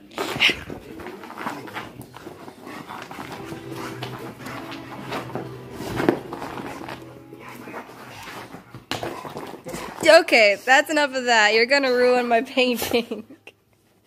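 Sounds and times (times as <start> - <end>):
low held sound: 3.2 - 8.8.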